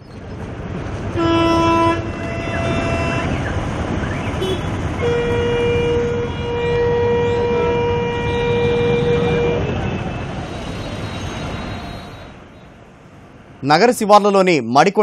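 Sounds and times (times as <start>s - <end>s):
street traffic noise: 0.0s - 15.0s
vehicle horns honking: 1.2s - 12.6s.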